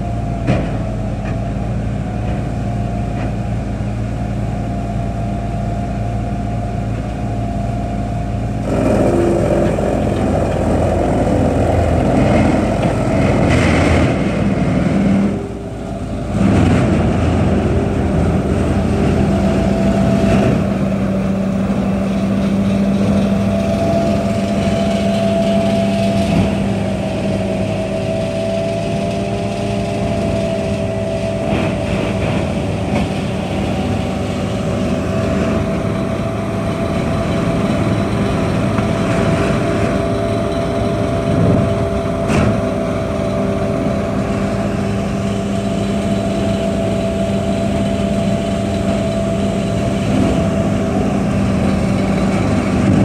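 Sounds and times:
wood grinder diesel drone: 0.0s - 53.0s
wood going through grinder: 8.6s - 28.4s.

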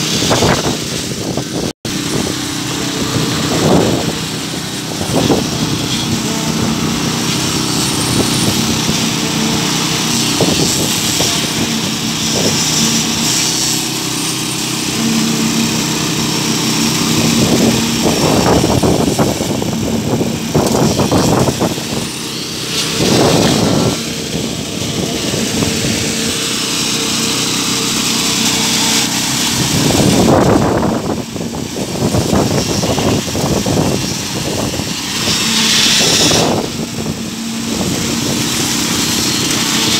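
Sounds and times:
concrete pouring from hose: 0.0s - 39.9s
small petrol engine running: 0.0s - 39.9s.

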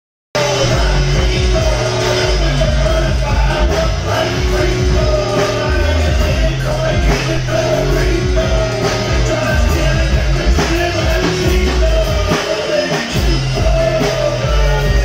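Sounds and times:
bass notes: 0.4s - 15.0s
live rock band: 0.4s - 15.0s.

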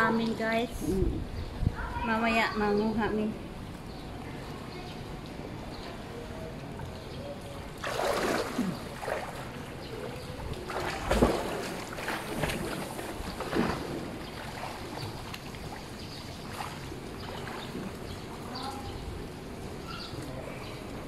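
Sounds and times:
pool water splashing and sloshing: 0.0s - 21.0s.

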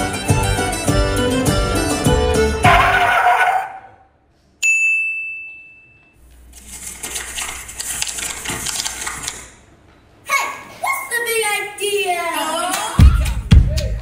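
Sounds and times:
dance music: 0.0s - 3.1s
bell ding: 4.6s - 6.2s.

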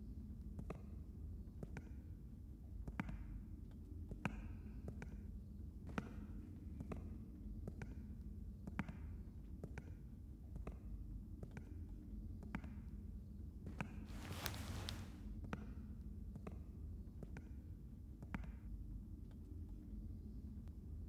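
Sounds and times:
low steady hum: 0.0s - 21.0s
slow footsteps in hallway: 13.7s - 15.5s.

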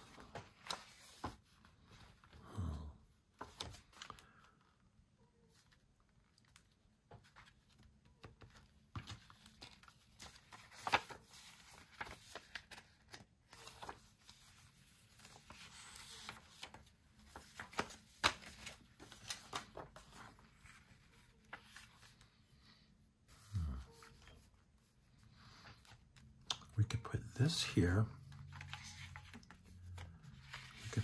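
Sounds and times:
paper rustling and tapping: 0.0s - 2.1s, 6.3s - 22.2s, 28.4s - 31.0s.

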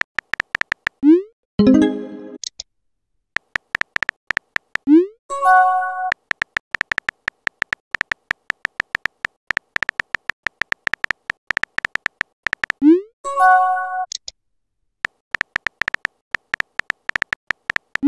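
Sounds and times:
phone keyboard tap clicks: 0.0s - 1.0s, 3.4s - 4.9s, 6.1s - 12.8s, 15.0s - 18.0s
message sent swoop and chime: 1.6s - 2.4s.

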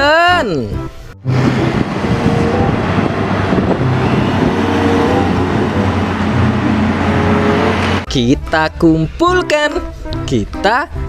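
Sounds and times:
traffic noise: 1.1s - 8.1s
truck diesel engine running: 1.2s - 8.1s.

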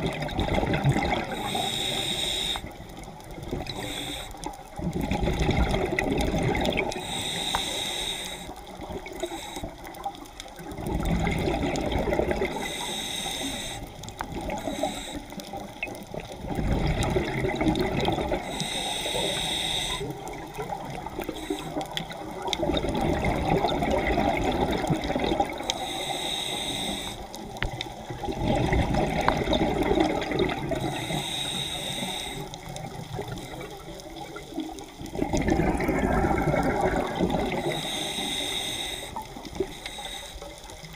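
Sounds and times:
exhaled air bubbling underwater: 0.0s - 40.9s
regulator inhalation hiss: 1.3s - 2.8s, 3.7s - 4.7s, 7.0s - 10.0s, 12.5s - 15.6s, 18.4s - 20.3s, 21.2s - 21.9s, 25.6s - 27.5s, 30.8s - 32.8s, 37.6s - 40.9s.

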